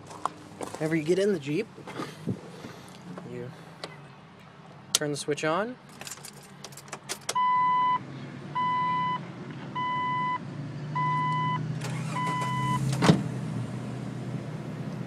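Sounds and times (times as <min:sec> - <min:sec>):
dashboard warning chime beeping: 0:07.4 - 0:08.0, 0:08.6 - 0:09.2, 0:09.8 - 0:10.4, 0:11.0 - 0:12.9
engine clunk: 0:11.7 - 0:13.3
starter motor cranking: 0:11.8 - 0:12.5.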